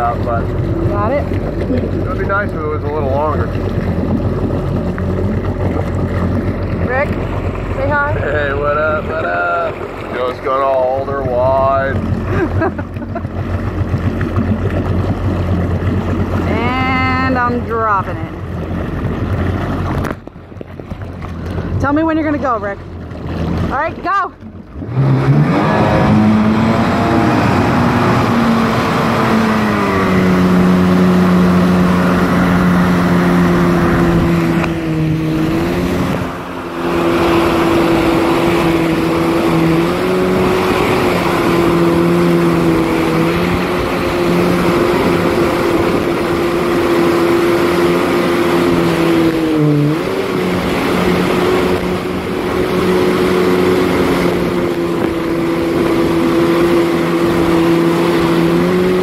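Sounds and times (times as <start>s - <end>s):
jet ski engine revving: 0.0s - 59.0s
water rushing past hull: 0.0s - 59.0s.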